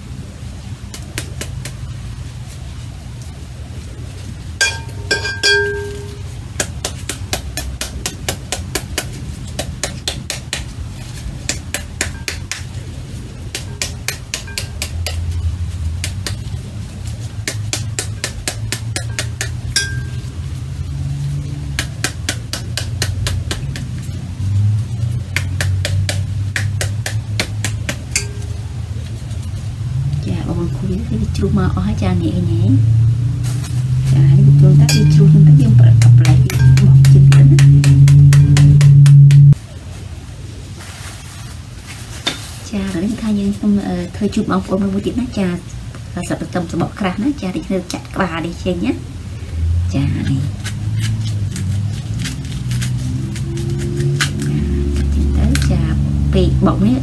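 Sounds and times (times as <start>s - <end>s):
spoon tapping pomegranate: 4.6s - 10.7s, 11.5s - 12.7s, 13.6s - 15.4s, 17.5s - 20.3s, 25.3s - 28.6s, 34.8s - 39.6s.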